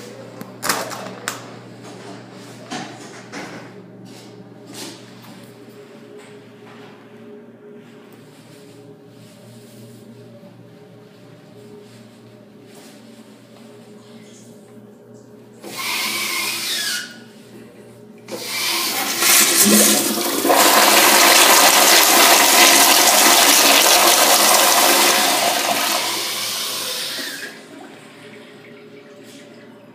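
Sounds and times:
toilet flushing: 0:18.3 - 0:28.8.

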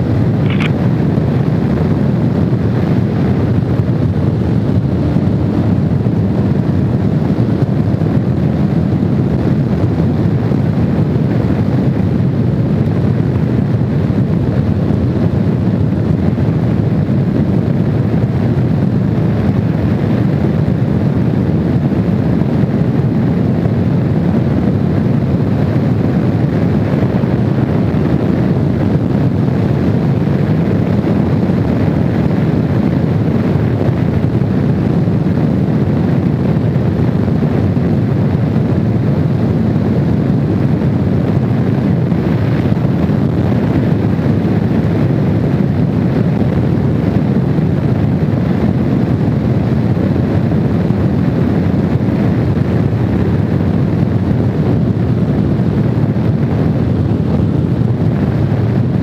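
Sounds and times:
motorcycle engine cruising: 0:00.0 - 0:13.5
wind rushing on microphone: 0:00.0 - 0:59.0.

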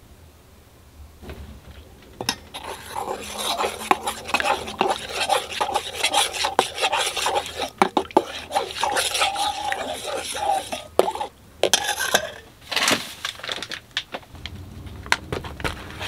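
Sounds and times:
bag of flour rustling: 0:12.6 - 0:13.9.

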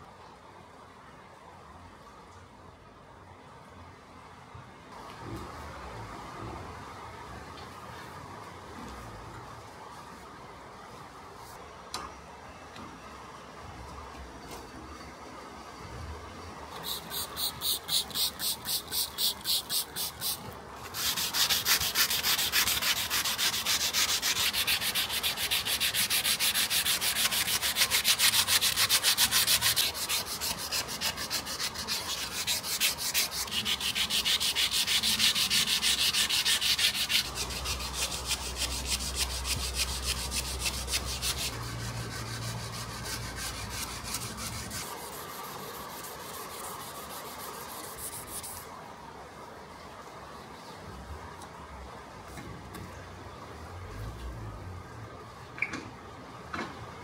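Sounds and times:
hand sanding strokes: 0:16.8 - 0:48.6.

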